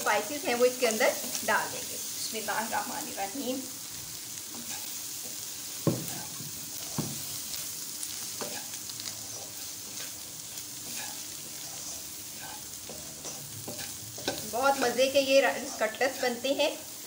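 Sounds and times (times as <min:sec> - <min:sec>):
food sizzling in a frying pan: 0:00.0 - 0:17.0
spatula scraping a pan: 0:04.4 - 0:16.4
spatula knocking on a pan: 0:05.8 - 0:07.3.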